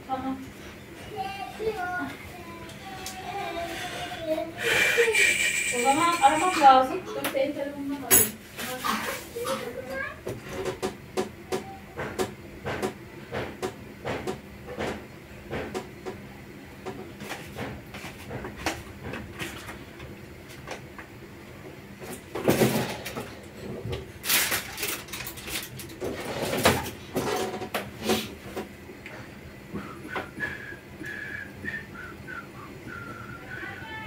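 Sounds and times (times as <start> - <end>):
kitchen scraping and clattering: 22.4 - 28.3.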